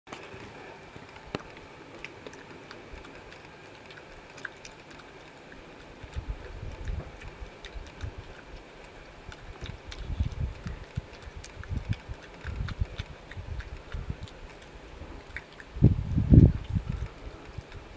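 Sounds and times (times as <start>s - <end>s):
badger chewing crunchily: 0.1s - 17.9s.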